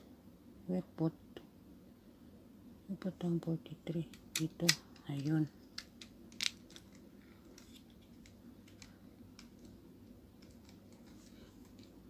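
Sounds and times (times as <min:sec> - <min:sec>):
plastic puzzle pieces clicking: 0:04.0 - 0:12.0.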